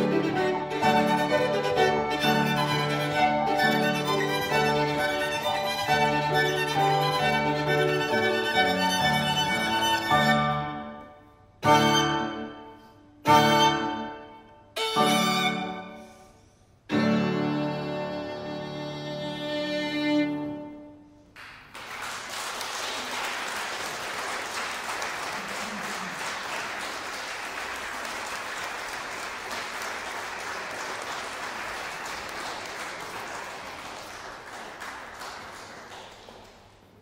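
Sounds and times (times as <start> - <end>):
audience applauding: 21.3 - 37.0.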